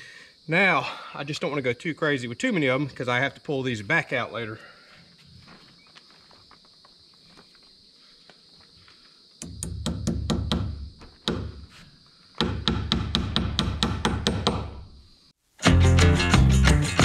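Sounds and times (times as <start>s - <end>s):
hammer striking nails into wood: 9.4s - 11.6s, 12.4s - 14.8s.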